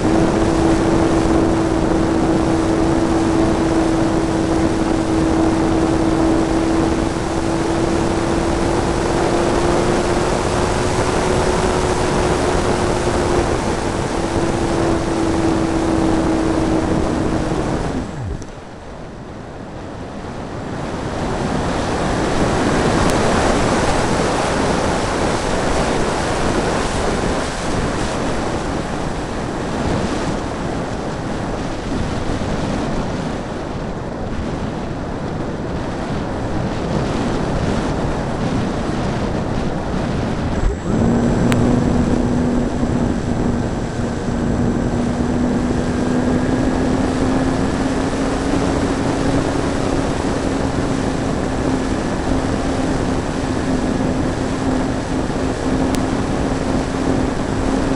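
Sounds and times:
electric motor whine: 0.0s - 19.0s, 38.8s - 57.9s
airflow rushing: 0.0s - 19.3s, 35.7s - 57.9s.

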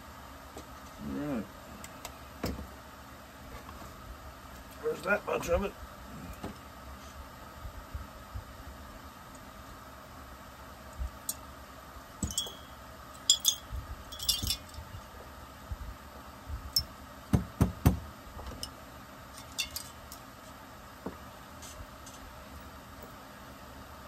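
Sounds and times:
metal parts clinking on workbench: 12.2s - 14.8s, 19.4s - 20.2s.

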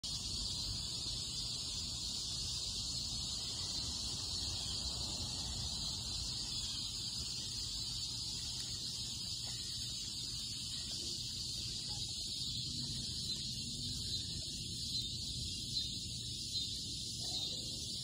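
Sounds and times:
insect chorus buzzing: 0.0s - 18.0s.

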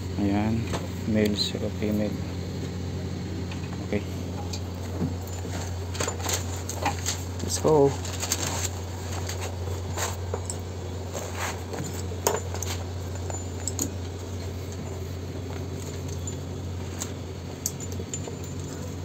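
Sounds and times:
steady low hum: 0.0s - 19.0s
metal clicks and clinks: 10.0s - 10.7s, 11.8s - 19.0s.

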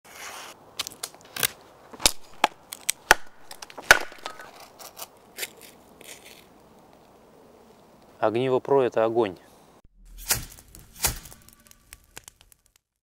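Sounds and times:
sharp cracks and knocks: 0.8s - 6.4s, 10.2s - 13.0s
knife slicing through paper: 10.1s - 12.6s.

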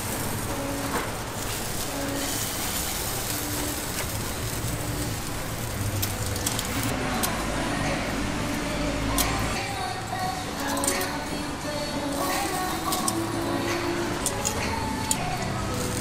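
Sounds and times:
street traffic: 0.0s - 16.0s
metallic clicks of tongs and hooks: 9.1s - 9.6s, 10.6s - 11.2s, 12.1s - 16.0s.

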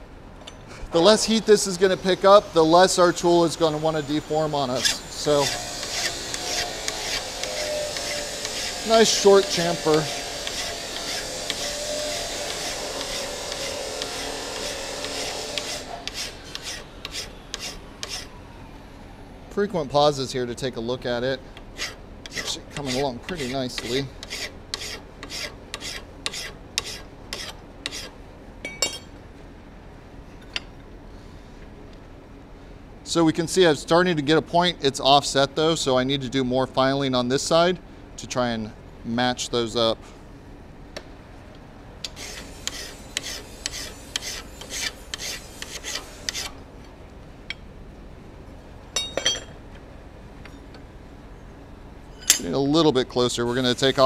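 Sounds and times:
file rasping on steel: 2.2s - 18.4s, 21.8s - 28.2s, 42.0s - 46.6s, 53.6s - 54.0s
bright metallic ring: 28.6s - 29.1s, 49.0s - 49.6s, 52.1s - 52.6s
short metallic clink: 28.6s - 29.1s, 52.2s - 52.5s.

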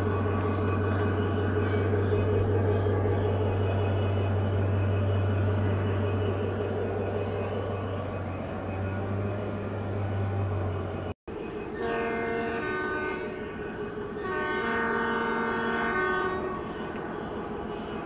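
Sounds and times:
model train rolling on track: 0.0s - 18.0s
electronic train horn: 11.7s - 18.0s.

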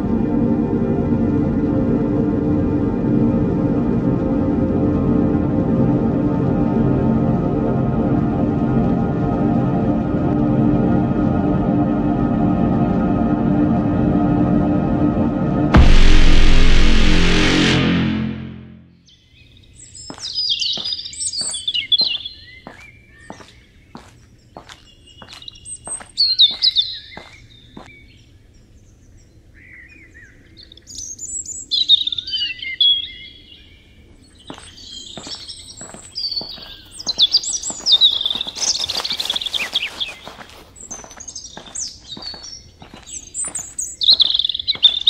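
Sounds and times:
songbirds singing: 19.0s - 45.0s
footsteps: 20.0s - 28.0s, 34.5s - 45.0s.

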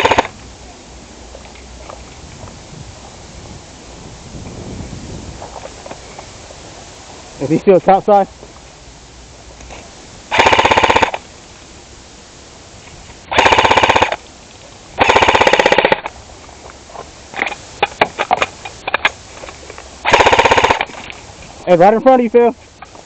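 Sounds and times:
rifle firing full-auto bursts: 0.0s - 0.3s, 10.3s - 11.2s, 13.3s - 14.2s, 15.0s - 16.1s, 20.0s - 20.9s.

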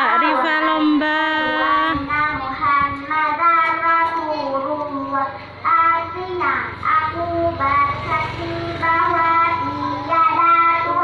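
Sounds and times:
child singing: 0.0s - 11.0s.

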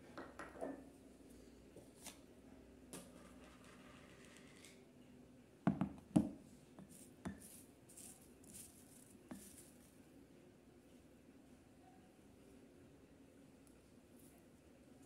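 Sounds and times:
glass bowl knocking on table: 5.7s - 6.4s
wooden spoon scraping dried herbs: 6.8s - 10.0s
dry rustle of herbs: 6.9s - 10.0s.

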